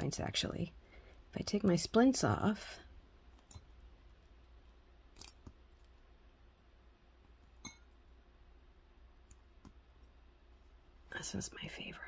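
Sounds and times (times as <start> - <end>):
faint metallic clicks and clinks: 3.4 - 3.7.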